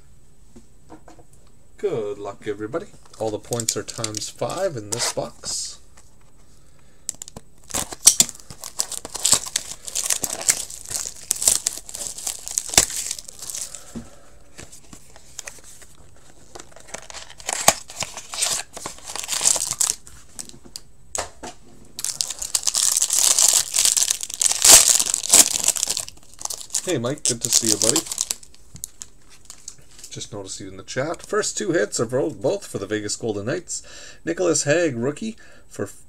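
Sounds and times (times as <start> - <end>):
packaging crinkling and tearing: 3.0 - 5.3, 7.1 - 13.9, 14.6 - 20.5, 22.0 - 30.2.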